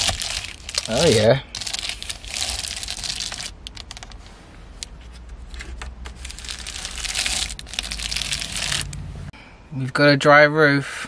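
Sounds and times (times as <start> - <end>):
plastic sheeting crinkling: 0.0 - 4.4, 6.1 - 8.9.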